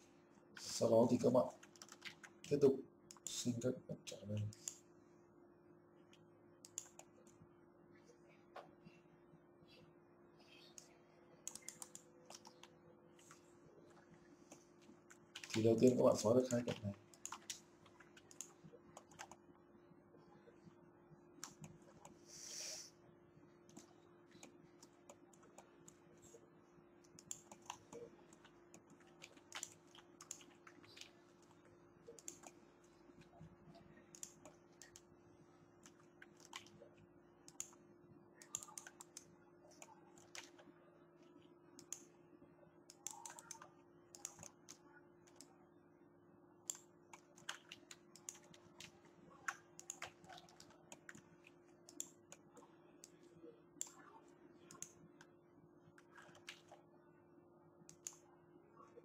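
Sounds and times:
low steady hum: 0.0s - 59.0s
mouse and keyboard clicking: 1.6s - 3.3s, 6.6s - 7.4s, 10.7s - 13.4s, 15.3s - 19.4s, 23.7s - 26.4s, 27.0s - 32.6s, 34.1s - 35.1s, 37.5s - 37.8s, 38.4s - 40.6s, 41.8s - 42.1s, 42.9s - 45.5s, 46.7s - 51.2s, 51.9s - 53.2s, 54.7s - 55.0s.

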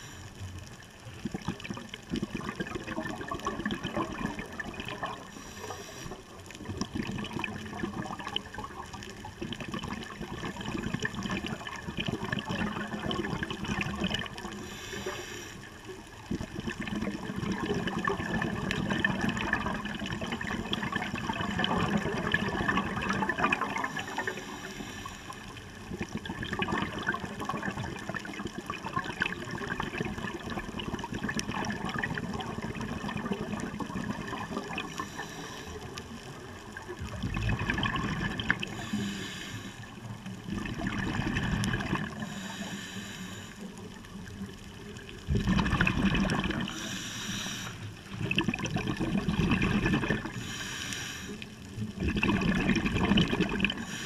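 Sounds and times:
gurgling exhaled bubbles: 0.0s - 42.8s, 43.6s - 54.0s
regulator inhalation hiss: 5.3s - 6.3s, 14.5s - 15.8s, 23.9s - 25.5s, 34.9s - 36.0s, 38.7s - 40.0s, 42.2s - 43.8s, 46.7s - 47.9s, 50.4s - 51.5s.

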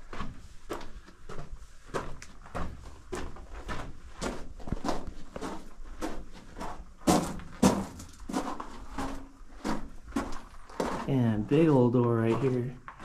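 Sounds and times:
footsteps crunching on gravel: 0.2s - 13.0s.

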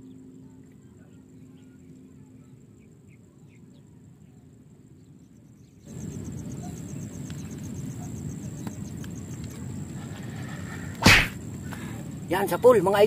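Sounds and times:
sharp swish: 11.0s - 11.4s.

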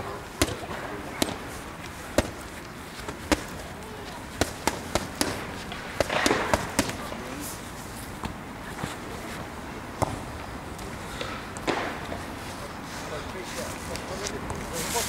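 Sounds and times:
boxing gloves slapping mitts: 0.3s - 8.4s.

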